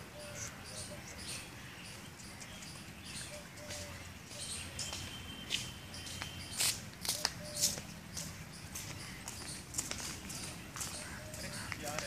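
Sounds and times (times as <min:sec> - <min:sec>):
faint outdoor background: 0:00.0 - 0:12.0
footsteps crackling on dry leaves: 0:02.6 - 0:12.0.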